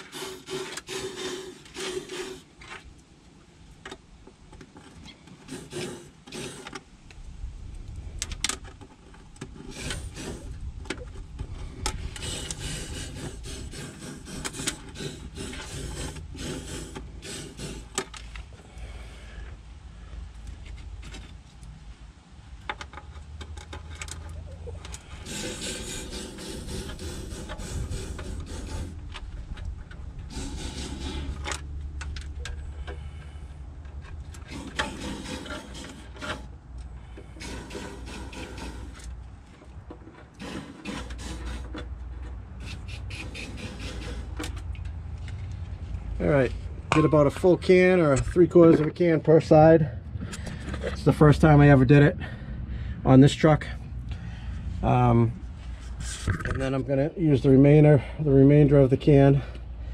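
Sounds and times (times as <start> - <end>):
aerosol can hissing: 0.0 - 2.5, 5.5 - 6.6, 12.0 - 18.0, 25.2 - 29.0, 30.2 - 31.4, 34.5 - 36.4, 37.3 - 39.0, 40.4 - 41.7, 42.6 - 44.4
hose scraping against metal: 0.0 - 2.9, 4.7 - 6.8, 8.7 - 19.5, 22.8 - 52.4, 53.1 - 59.5.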